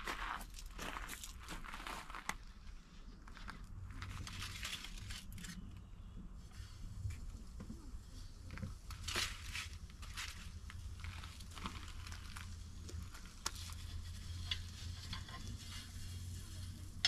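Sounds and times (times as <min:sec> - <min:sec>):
steady low hum: 0:02.4 - 0:17.0
plastic packet crinkling: 0:08.9 - 0:13.9.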